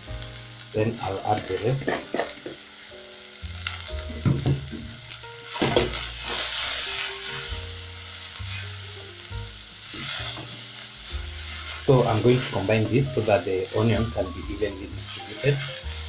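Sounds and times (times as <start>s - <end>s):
vegetables sizzling in oil: 0.0s - 16.0s
wooden spoon knocking pan: 1.8s - 2.6s, 4.1s - 5.0s.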